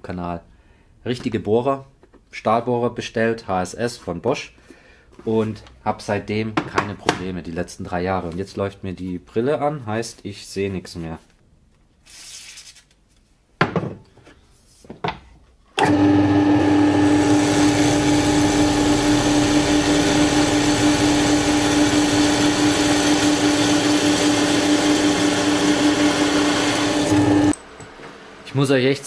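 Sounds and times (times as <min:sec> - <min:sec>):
drill press humming: 0:15.8 - 0:28.5.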